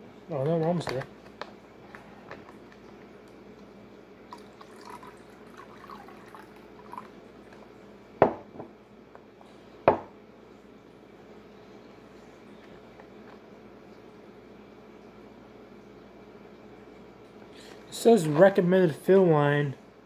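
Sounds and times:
water trickling: 0:04.2 - 0:07.6.

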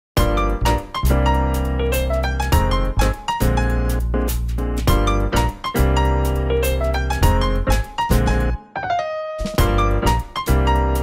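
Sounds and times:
steady bass line: 0:00.2 - 0:08.6
bright keyboard tune: 0:00.2 - 0:11.0.

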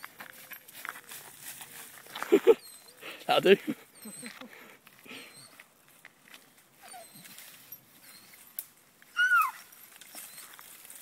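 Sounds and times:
rustling and scuffing: 0:00.0 - 0:11.0
dog whining: 0:06.8 - 0:07.4, 0:09.1 - 0:10.6
dog yelping: 0:06.8 - 0:07.4, 0:09.1 - 0:10.6.

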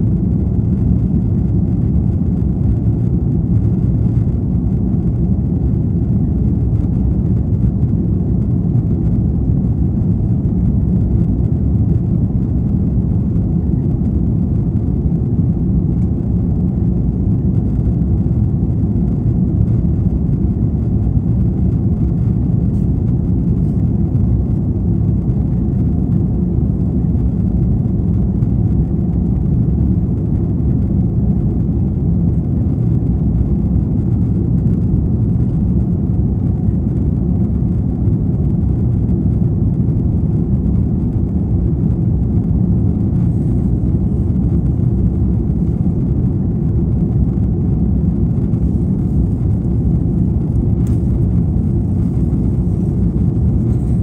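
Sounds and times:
airliner cabin engine rumble: 0:00.0 - 0:54.0.

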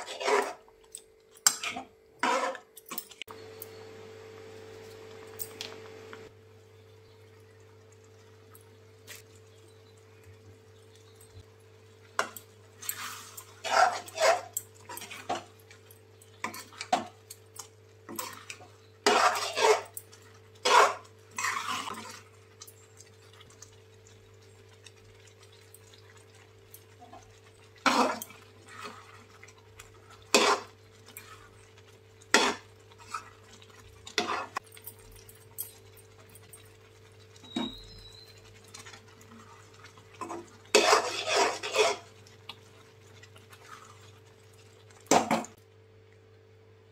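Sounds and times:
spoon scraping a metal pan: 0:00.0 - 0:00.6, 0:01.4 - 0:03.0, 0:12.2 - 0:15.5, 0:18.1 - 0:22.2, 0:27.8 - 0:29.3, 0:30.0 - 0:31.5, 0:32.3 - 0:33.4, 0:34.1 - 0:34.6, 0:40.2 - 0:42.1.

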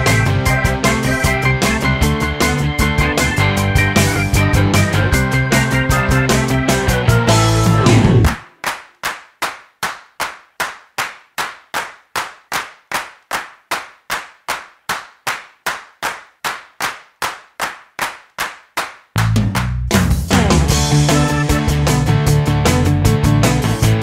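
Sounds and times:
rock band playing: 0:00.0 - 0:08.4, 0:19.2 - 0:24.0
clap-like percussive hit: 0:07.9 - 0:21.3.

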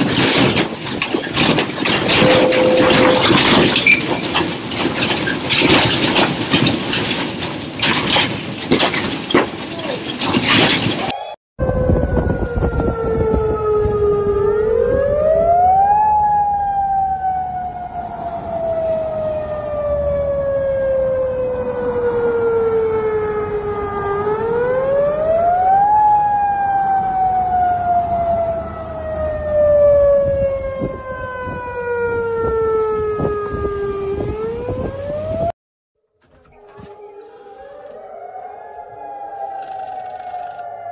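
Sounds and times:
warning siren wailing: 0:01.4 - 0:05.2, 0:11.1 - 0:35.6, 0:36.3 - 0:40.9
vehicle low rumble: 0:36.2 - 0:40.9.

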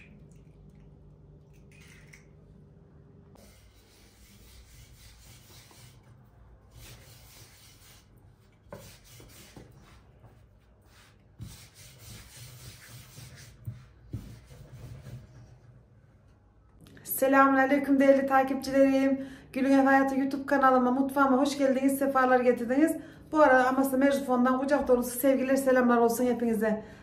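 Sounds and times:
rolling pin rubbing on dough: 0:03.4 - 0:15.6.

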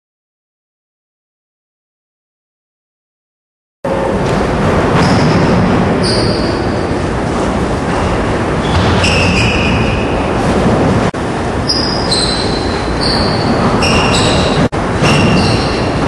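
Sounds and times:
sneakers squeaking on wooden floor: 0:05.0 - 0:06.9, 0:07.9 - 0:10.5, 0:11.7 - 0:16.0.

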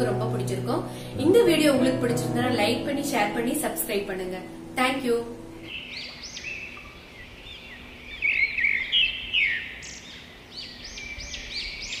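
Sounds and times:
birds chirping and warbling: 0:05.6 - 0:12.0.

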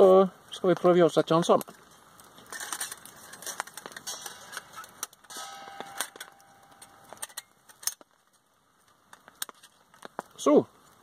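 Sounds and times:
metal plates clicking and clinking: 0:02.5 - 0:08.0
short metallic ring: 0:05.3 - 0:07.4.

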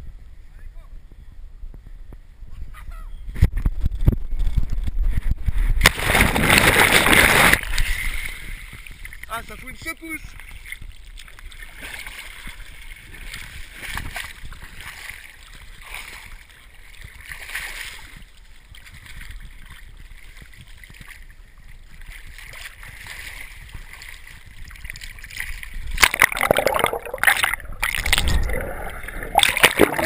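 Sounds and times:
muffled water lapping: 0:04.4 - 0:30.0
loud splashing and churning: 0:05.8 - 0:09.4, 0:10.4 - 0:18.2, 0:22.0 - 0:30.0.

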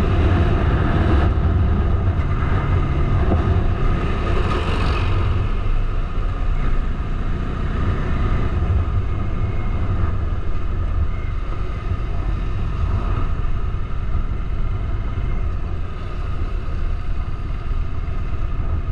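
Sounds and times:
wind rumble on microphone: 0:00.0 - 0:18.9.

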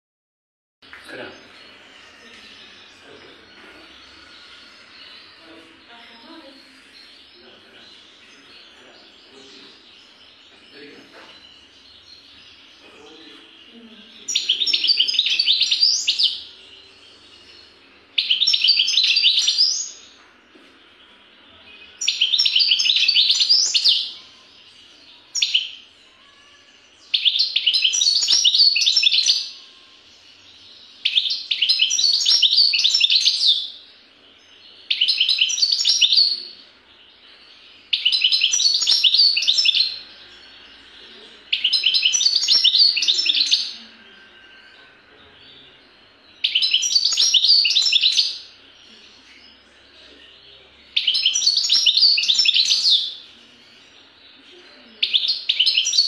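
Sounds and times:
finch singing: 0:01.1 - 0:56.0.

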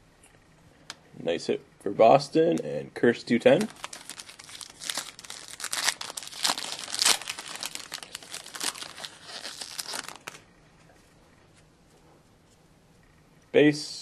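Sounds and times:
foil pack tearing and crinkling: 0:03.6 - 0:10.4.

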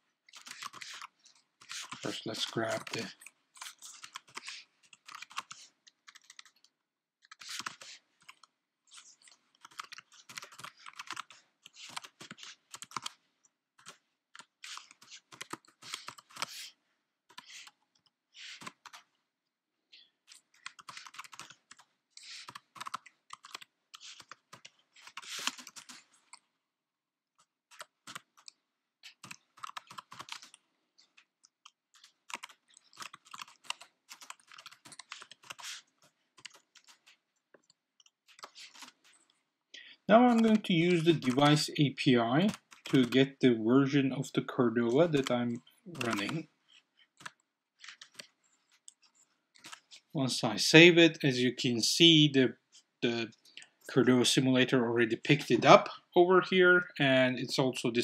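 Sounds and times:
typing on computer keyboard: 0:00.3 - 0:13.2, 0:13.8 - 0:16.6, 0:20.3 - 0:26.4, 0:27.7 - 0:39.1, 0:40.3 - 0:41.6, 0:42.4 - 0:43.3, 0:45.9 - 0:46.4, 0:47.2 - 0:48.3, 0:48.9 - 0:50.0.

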